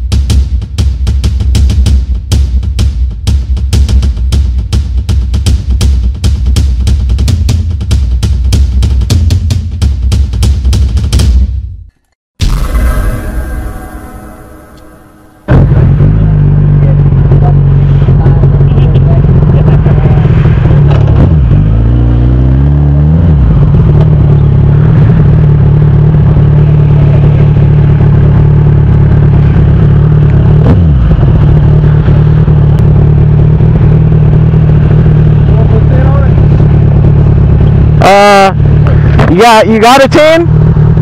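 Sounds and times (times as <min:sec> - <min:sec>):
motorcycle engine revving: 0:15.5 - 0:39.3, 0:40.5 - 0:41.0
motorcycle engine idling: 0:16.3 - 0:21.2, 0:23.5 - 0:39.0.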